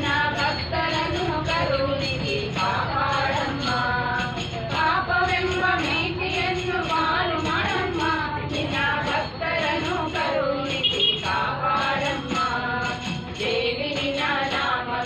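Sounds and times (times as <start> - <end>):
women singing devotional song: 0.0 - 15.0.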